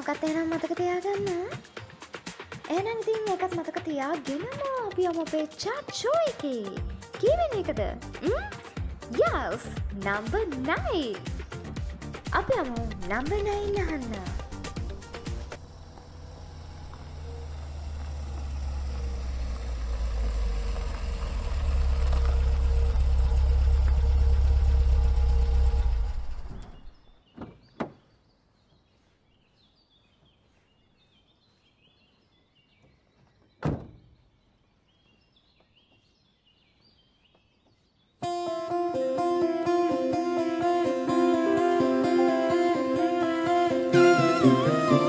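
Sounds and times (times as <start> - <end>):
low rumble: 12.6 - 27.0
faint bird chirping: 26.6 - 38.2
dull thumps: 27.3 - 28.0.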